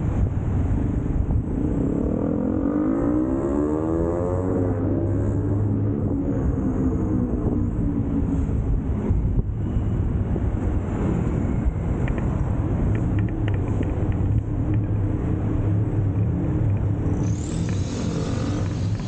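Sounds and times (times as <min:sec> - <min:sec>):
road and wind noise: 0:00.0 - 0:19.0
small engine running: 0:17.1 - 0:19.0.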